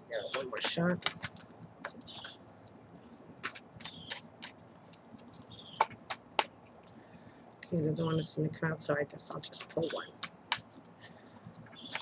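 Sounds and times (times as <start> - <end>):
cards being shuffled: 0.2 - 7.9, 9.4 - 12.0.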